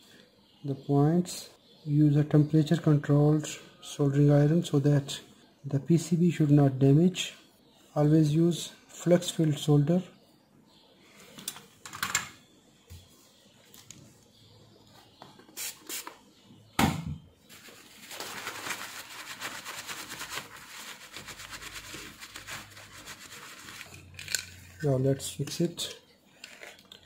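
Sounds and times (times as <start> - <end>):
paper tissue rustling: 17.5 - 24.2.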